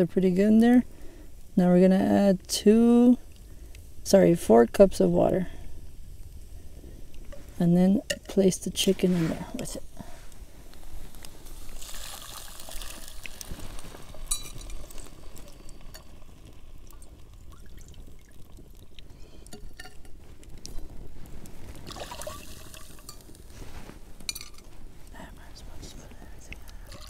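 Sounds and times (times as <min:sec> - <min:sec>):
water pouring into a pot: 0:11.4 - 0:20.8, 0:21.7 - 0:23.5.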